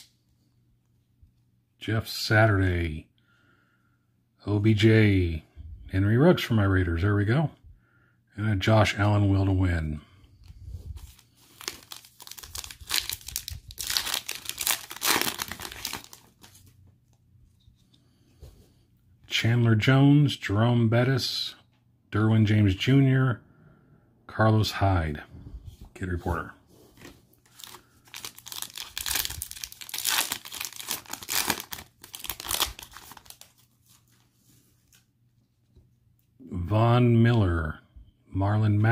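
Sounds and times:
card pack wrapper tearing and crinkling: 0:11.0 - 0:16.7, 0:27.0 - 0:34.0.

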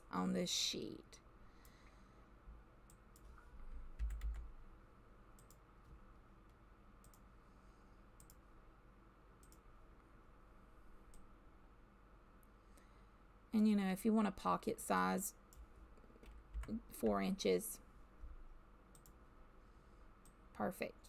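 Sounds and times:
computer mouse clicks: 0:04.0 - 0:04.5, 0:05.4 - 0:05.6, 0:06.5 - 0:07.3, 0:08.2 - 0:08.4, 0:09.4 - 0:09.7, 0:18.9 - 0:19.2
keyboard keystrokes: 0:04.0 - 0:04.5.

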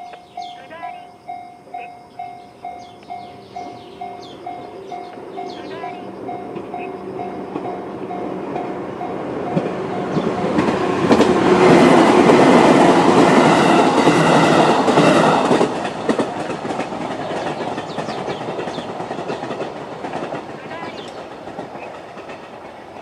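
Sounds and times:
level crossing warning bell: 0:00.0 - 0:11.2
electric train clattering over rails: 0:00.0 - 0:23.0.

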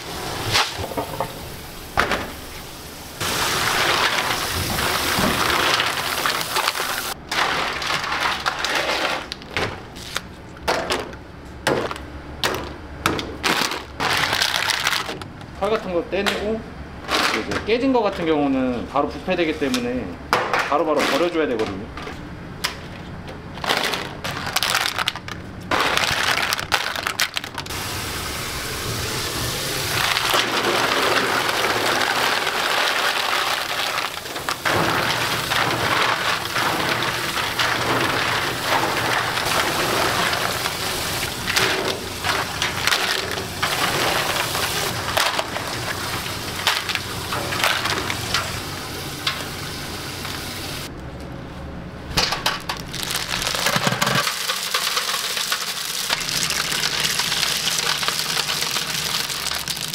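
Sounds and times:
shellfish shells clattering: 0:23.6 - 0:27.7, 0:30.0 - 0:48.6, 0:52.3 - 0:59.9.

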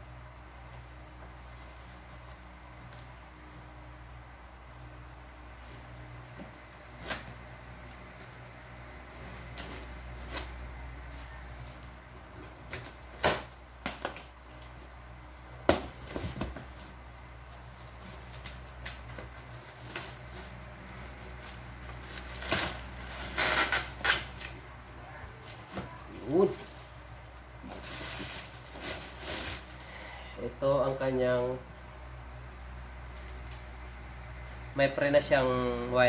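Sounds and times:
packing tape being cut: 0:11.7 - 0:14.8, 0:21.4 - 0:24.6, 0:27.7 - 0:29.9
packing wrap rustling: 0:15.9 - 0:24.7, 0:25.4 - 0:30.0.

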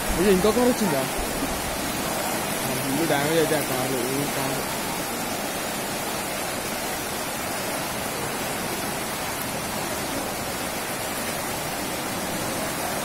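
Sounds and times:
floodwater rushing: 0:00.0 - 0:13.0.

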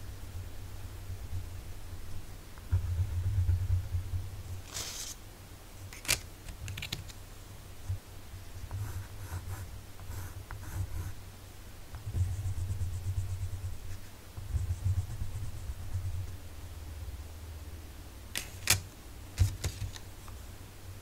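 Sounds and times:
pencil scratching on paper: 0:08.7 - 0:11.2, 0:12.0 - 0:16.1.

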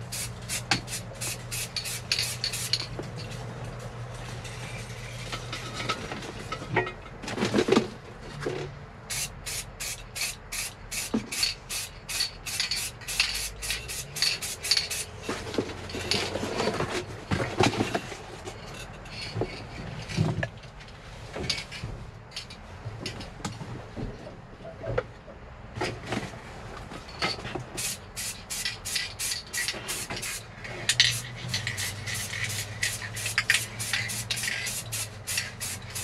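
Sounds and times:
spray can ball rattling: 0:00.0 - 0:03.4, 0:09.1 - 0:15.3, 0:27.8 - 0:36.0
knocks and rustles: 0:14.2 - 0:24.3.

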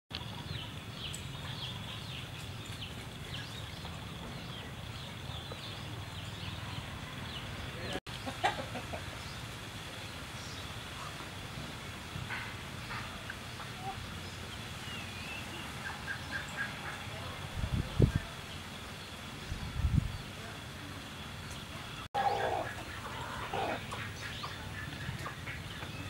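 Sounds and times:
chickens clucking: 0:03.8 - 0:09.4, 0:21.5 - 0:26.0.

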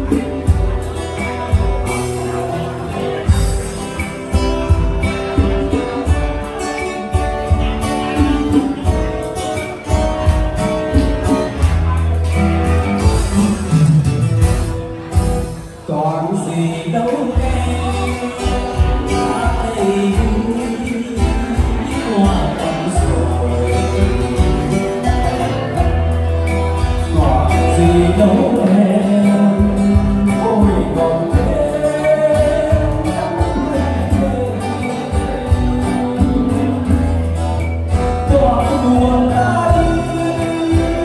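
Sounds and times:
guitar: 0:00.0 - 0:41.0
held bass notes: 0:00.0 - 0:41.0
person singing: 0:15.7 - 0:41.0.

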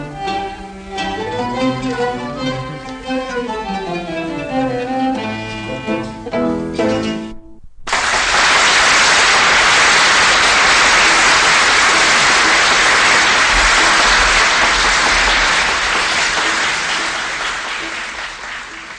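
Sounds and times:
audience applause: 0:07.9 - 0:18.9.

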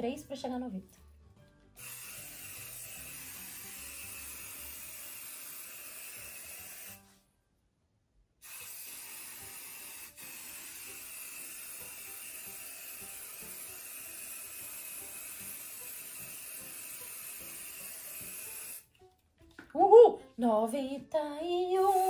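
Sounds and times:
aerosol can spraying hiss: 0:01.8 - 0:07.0, 0:08.4 - 0:18.9.

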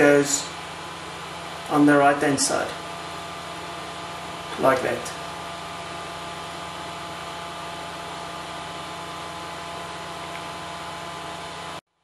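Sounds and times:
mains hum: 0:00.0 - 0:12.0
room tone hum and hiss: 0:00.0 - 0:12.0.

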